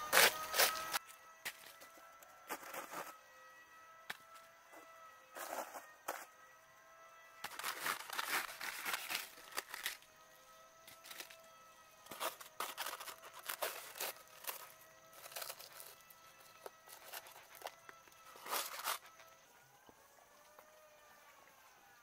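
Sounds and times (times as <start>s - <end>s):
papery wasp nest crackling and tearing: 0.1s - 1.0s, 7.4s - 10.1s, 10.8s - 19.3s.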